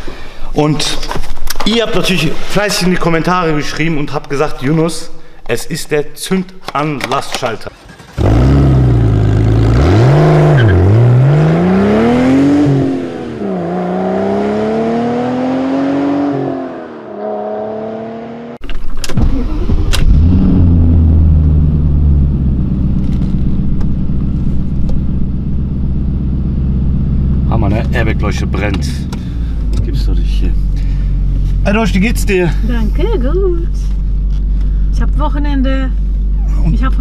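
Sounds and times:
car engine starting and idling: 6.7s - 37.0s
engine revving: 7.9s - 18.6s, 19.3s - 23.5s.

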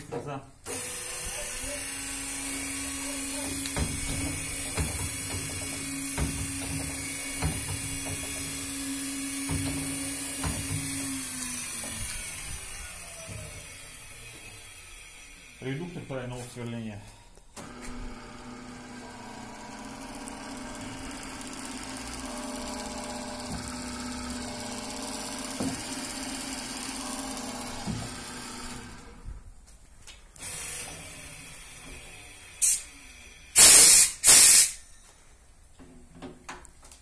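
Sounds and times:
router motor humming: 0.7s - 16.3s, 17.6s - 29.2s
compressed air blasts: 32.6s - 32.9s, 33.6s - 34.9s.

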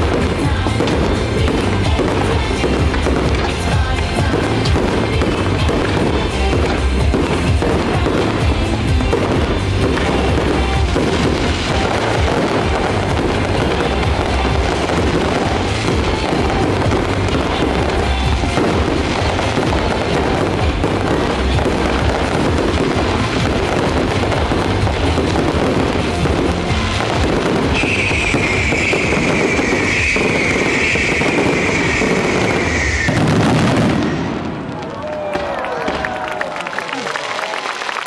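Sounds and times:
music: 0.0s - 34.5s
fireworks bangs and crackling: 0.0s - 38.0s
high tone sliding down: 27.8s - 34.3s.

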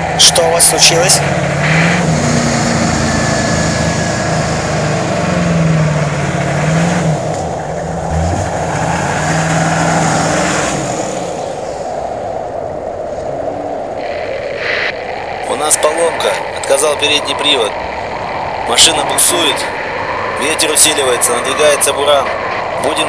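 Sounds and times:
vehicle engine revving: 0.8s - 12.2s.

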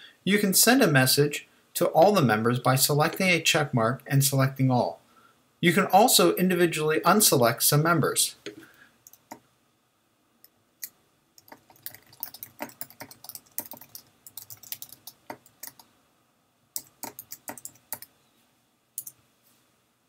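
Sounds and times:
computer keyboard typing: 11.4s - 15.8s, 16.8s - 18.1s.

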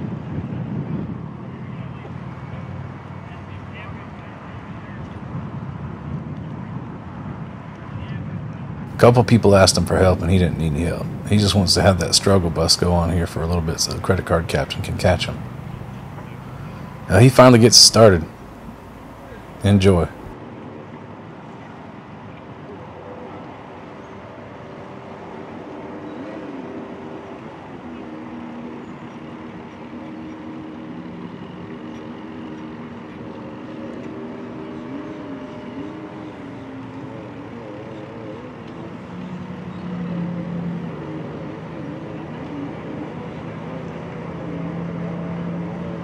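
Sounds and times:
low engine note: 9.0s - 20.3s.

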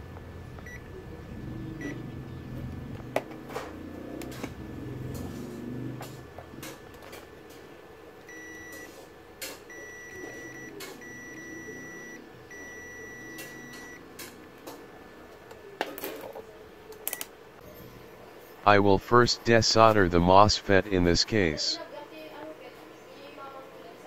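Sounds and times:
multimeter beeping: 8.3s - 8.9s, 9.7s - 14.0s.

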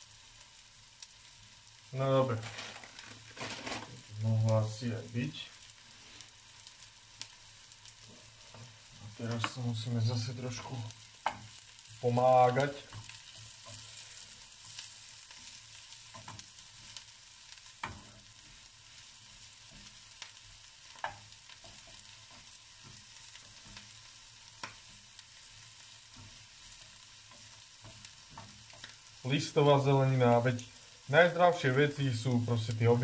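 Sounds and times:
vegetables sizzling in oil: 0.0s - 33.0s
wooden spoon clicking on pan: 11.2s - 11.6s, 19.7s - 24.9s, 27.2s - 29.1s.

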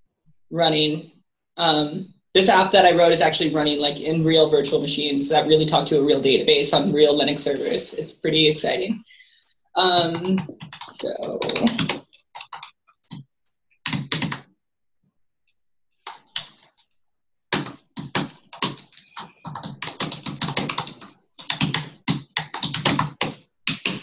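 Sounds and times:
typing on computer keyboard: 10.0s - 13.2s, 13.8s - 14.5s, 17.5s - 24.0s.

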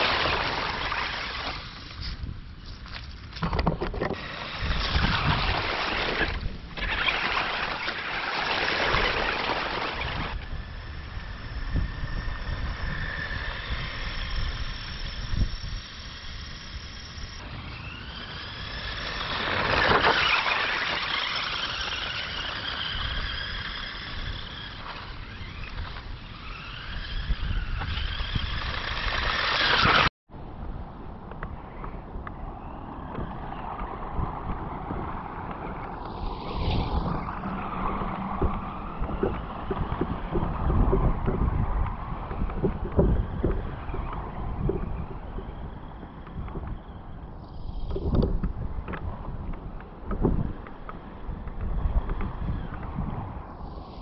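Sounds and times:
tyres on wet gravel: 0.0s - 3.5s, 4.1s - 11.6s, 12.2s - 30.1s
electric motors whining: 4.1s - 30.1s, 32.6s - 49.0s.

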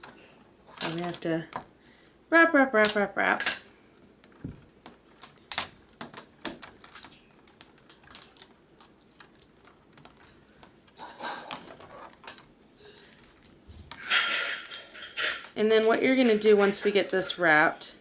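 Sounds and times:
plastic cable wrap clicking: 4.2s - 17.2s.

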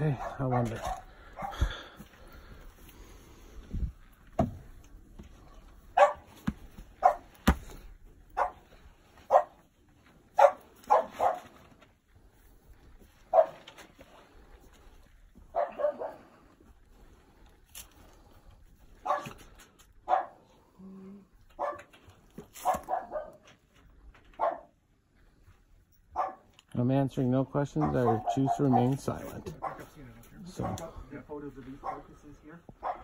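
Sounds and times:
dog barking: 0.0s - 1.6s, 5.9s - 6.3s, 7.0s - 7.4s, 8.4s - 8.6s, 9.3s - 9.6s, 10.3s - 11.6s, 13.3s - 13.7s, 15.5s - 16.3s, 19.0s - 19.4s, 20.0s - 20.5s, 21.6s - 21.9s, 22.6s - 23.5s, 24.4s - 24.8s, 26.1s - 26.5s, 27.8s - 30.9s, 31.8s - 32.2s, 32.8s - 33.0s.

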